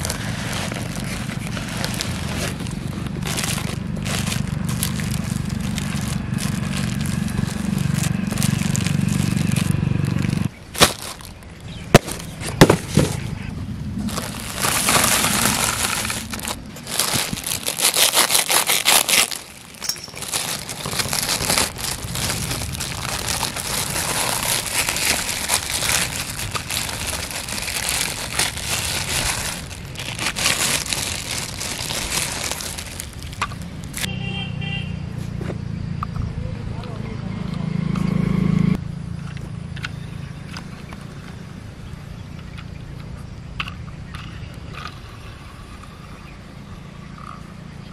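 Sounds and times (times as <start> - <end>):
plastic wrapping crinkling: 0.0 - 13.2, 14.0 - 34.1.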